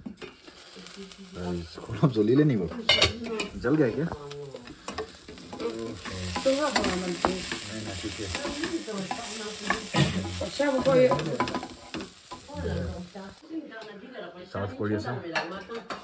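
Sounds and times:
spoon scraping a pan: 0.0s - 1.4s, 2.6s - 13.4s
food sizzling in a pan: 0.0s - 13.6s.

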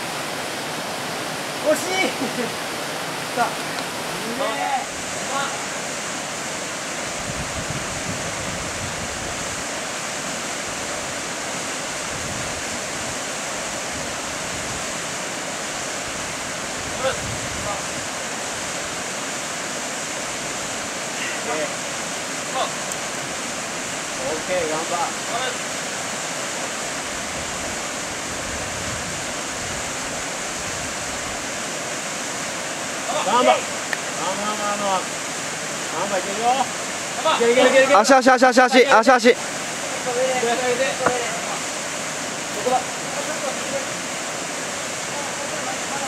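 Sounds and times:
water rushing over rocks: 0.0s - 46.0s
wind rumbling on microphone: 6.8s - 19.2s, 26.6s - 31.8s.

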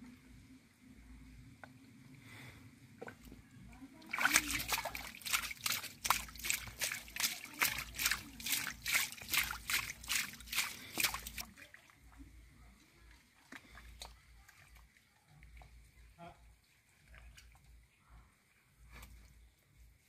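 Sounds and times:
faint squelching: 2.9s - 19.6s
wet mud splats and sloshes: 4.0s - 12.0s.

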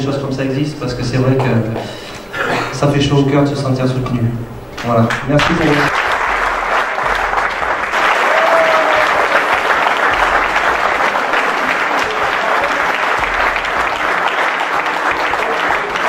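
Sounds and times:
audience applauding: 5.1s - 16.0s.

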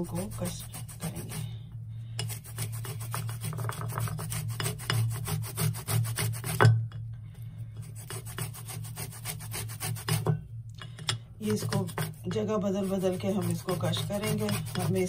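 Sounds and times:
orange rind scraping on grater: 0.0s - 1.6s, 2.2s - 6.6s, 7.8s - 10.3s, 11.4s - 15.0s.

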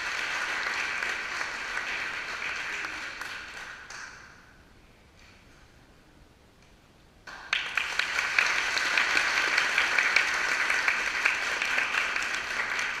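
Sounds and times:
audience applauding: 0.0s - 4.2s, 7.3s - 13.0s.

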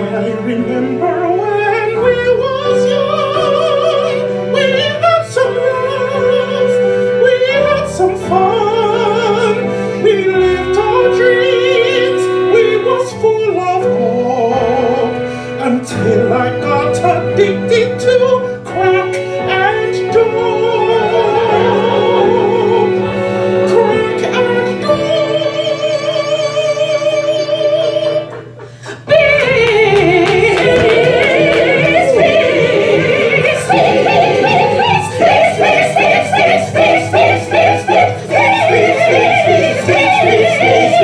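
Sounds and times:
person singing operatically: 0.0s - 41.0s
sustained accompaniment chords: 27.6s - 41.0s.

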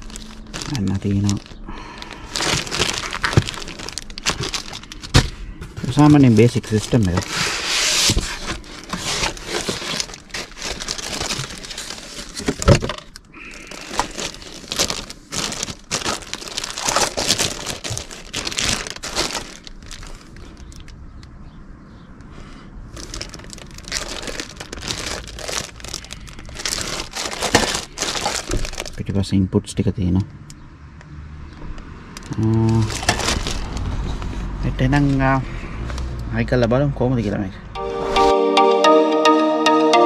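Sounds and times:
plastic bags crinkling: 0.0s - 21.0s, 22.9s - 29.1s, 32.2s - 34.3s.

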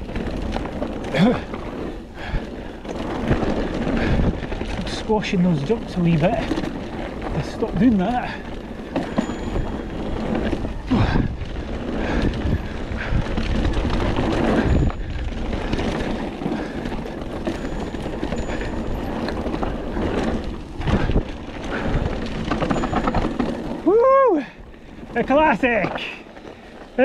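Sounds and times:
bike knocking over bumps: 0.0s - 23.9s
bike tyre and drivetrain rattle: 0.0s - 27.0s.

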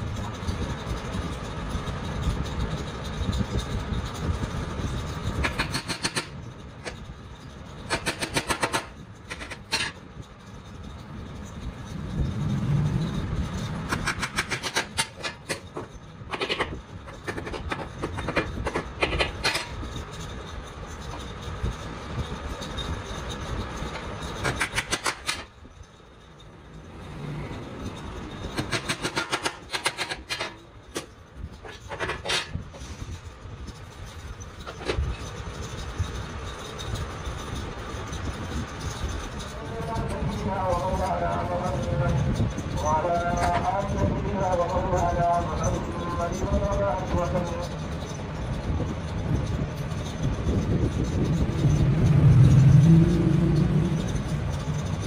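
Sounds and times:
low rumble: 10.7s - 14.6s.

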